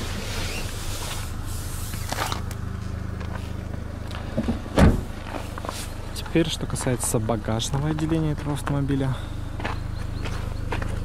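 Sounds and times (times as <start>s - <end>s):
car cabin hum: 0.0s - 11.0s
heavy thump: 4.4s - 5.1s.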